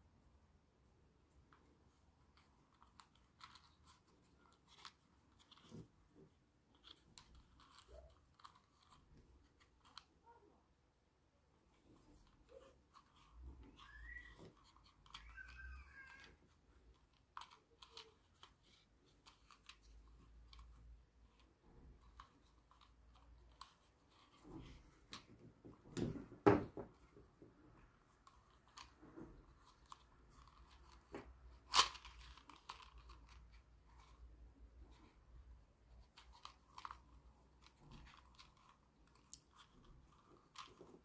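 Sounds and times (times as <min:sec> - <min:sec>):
clicks and rustles of cord and plastic: 0:01.3 - 0:10.4, 0:11.5 - 0:41.0.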